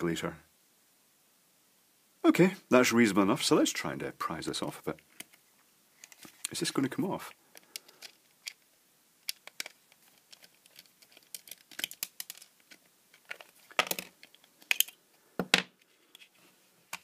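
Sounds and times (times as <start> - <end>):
light plastic clicks and scrapes: 6.0 - 6.6, 7.5 - 8.6, 9.2 - 15.0
plastic clacks: 9.2 - 16.3.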